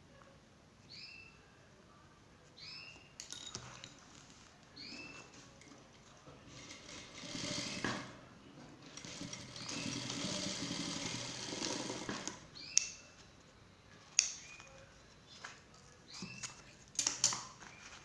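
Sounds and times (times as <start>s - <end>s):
sewing machine stitching: 6.5s - 8.2s, 8.8s - 12.5s.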